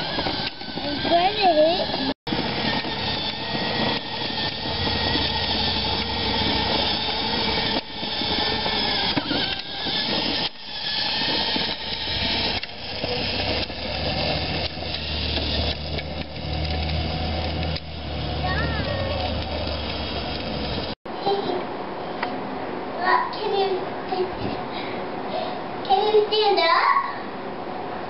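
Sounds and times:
electric motor whining: 0:00.0 - 0:21.0
plastic wheels rolling on concrete: 0:00.0 - 0:21.0.

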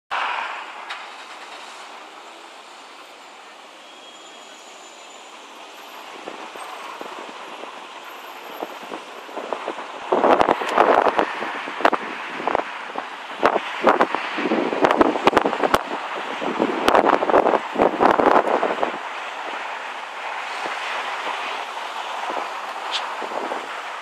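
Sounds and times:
street hiss: 0:00.1 - 0:24.0
wind buffeting: 0:06.1 - 0:24.0
crackling on microphone: 0:06.2 - 0:14.2.

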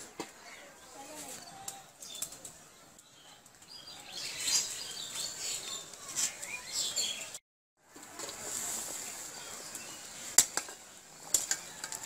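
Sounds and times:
birds chirping: 0:00.4 - 0:07.4.

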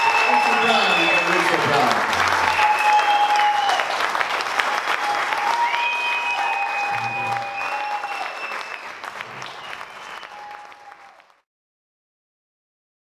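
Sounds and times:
long held whistles: 0:00.0 - 0:01.5, 0:02.5 - 0:03.7, 0:05.3 - 0:11.0
audience applauding: 0:00.0 - 0:11.5.

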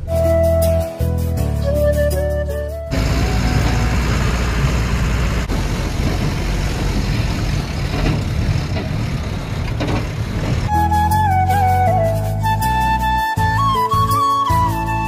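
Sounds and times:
truck engine rumbling: 0:00.0 - 0:14.9
road noise in cab: 0:02.9 - 0:10.7
rattles and knocks: 0:05.9 - 0:10.7.

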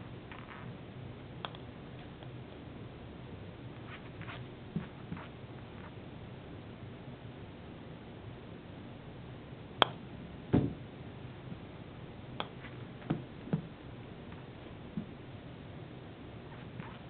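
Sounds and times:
ball thudding into something: 0:09.8 - 0:10.8.

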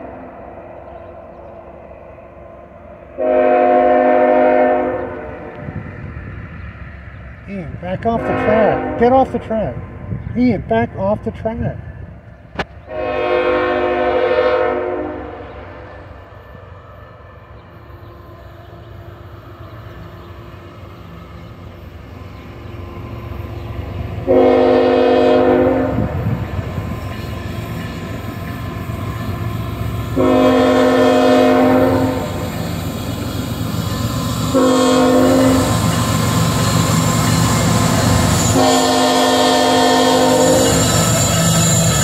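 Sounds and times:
train rumble: 0:00.0 - 0:42.0
locomotive air horn blasts: 0:03.2 - 0:05.6, 0:08.2 - 0:09.2, 0:12.9 - 0:15.8, 0:24.3 - 0:26.2, 0:30.2 - 0:32.4, 0:34.5 - 0:35.8, 0:38.3 - 0:40.9.

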